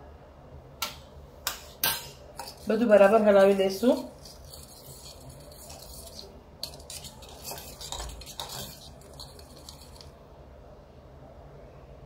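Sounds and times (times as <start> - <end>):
spoon clinking in a steel bowl: 1.8 - 10.1.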